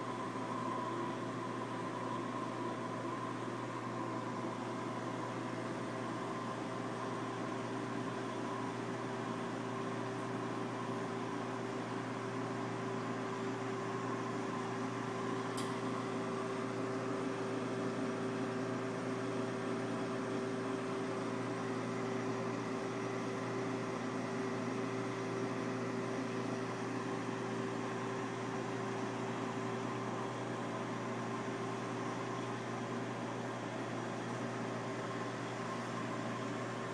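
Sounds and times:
aquarium equipment humming: 0.0 - 36.9
faint high click: 15.5 - 15.8.

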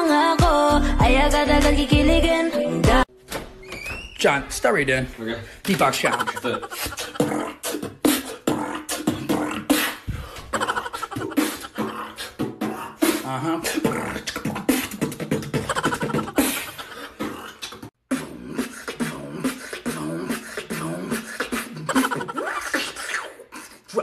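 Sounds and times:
beatboxing: 6.0 - 24.0.

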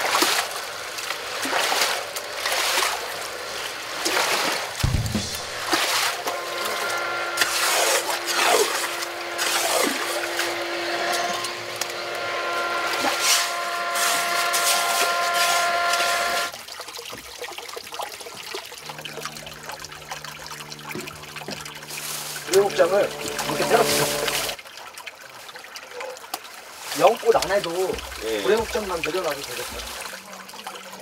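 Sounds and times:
rake scraping sand: 5.3 - 16.5.

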